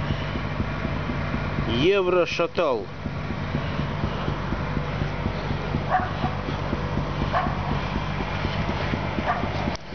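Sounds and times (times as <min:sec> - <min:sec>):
petrol engine running: 0:00.0 - 0:09.9
dog barking: 0:05.9 - 0:06.4, 0:07.3 - 0:07.8, 0:09.2 - 0:09.5.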